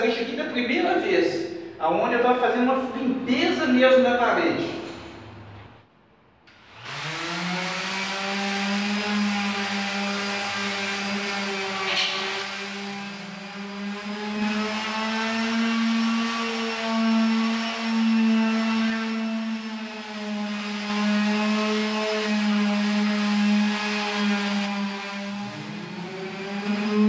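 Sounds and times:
electric sander humming: 6.5s - 27.0s
sandpaper on plaster wall: 6.8s - 27.0s.

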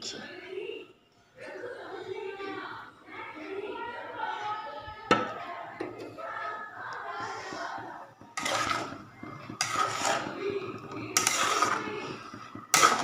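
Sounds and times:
sudden noisy cooking bursts: 6.7s - 13.0s
metal cookware clattering: 8.3s - 13.0s.

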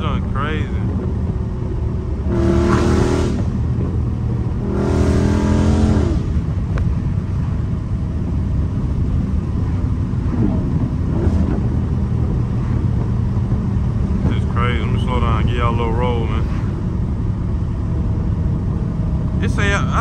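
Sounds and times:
deep engine exhaust drone: 0.0s - 20.0s.

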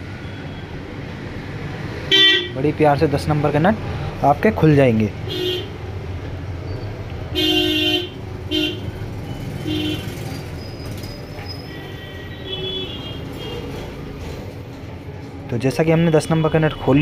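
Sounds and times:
street noise rumble: 0.0s - 17.0s
vehicle horns tooting: 2.1s - 2.6s, 5.3s - 5.8s, 7.3s - 10.5s, 11.5s - 13.9s.

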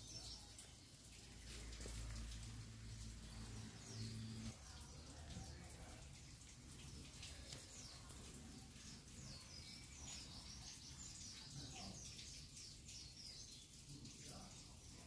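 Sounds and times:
low steady background noise: 0.0s - 15.0s.

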